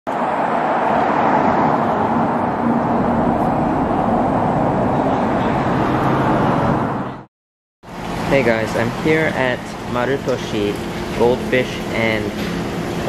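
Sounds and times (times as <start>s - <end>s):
cars driving past: 0.1s - 7.3s.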